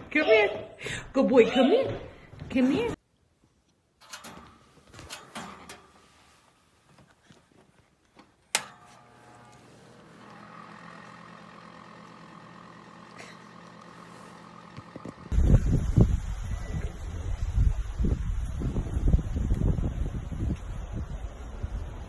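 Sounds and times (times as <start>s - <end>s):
heater switch click: 8.5s - 9.6s
electrical hum: 8.5s - 18.2s.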